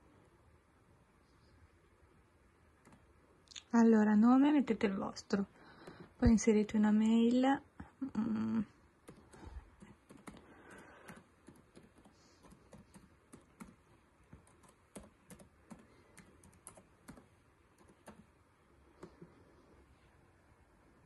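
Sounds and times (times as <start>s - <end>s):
laptop keyboard typing: 2.7s - 3.2s, 9.0s - 19.6s.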